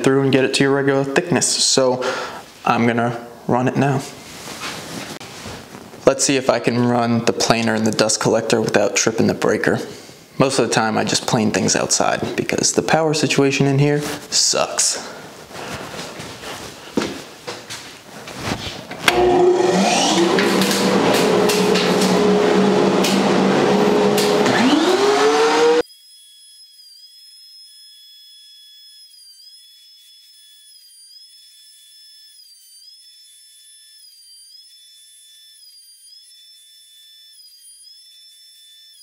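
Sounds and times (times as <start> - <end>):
thickness planer and dust collector: 19.0 - 39.0.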